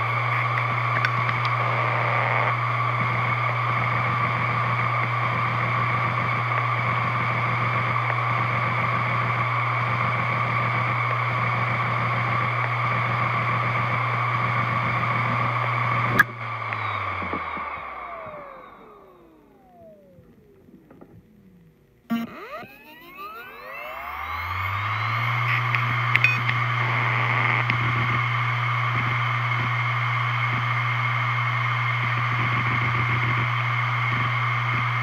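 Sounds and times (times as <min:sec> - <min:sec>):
hard drive humming and whining: 0:00.0 - 0:35.0
hard drive click: 0:00.2 - 0:02.6, 0:25.3 - 0:28.2.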